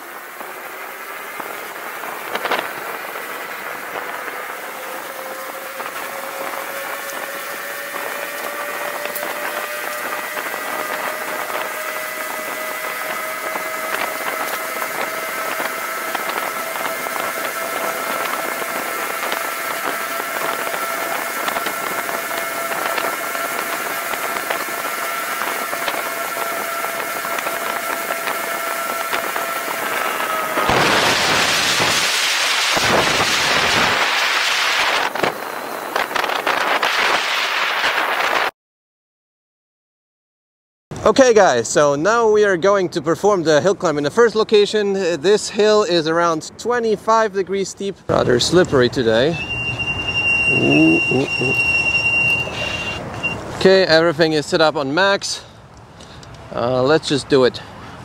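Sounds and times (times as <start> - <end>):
electric scooter motor whining: 0.0 - 38.4, 48.1 - 53.6
wind rushing: 0.1 - 38.5.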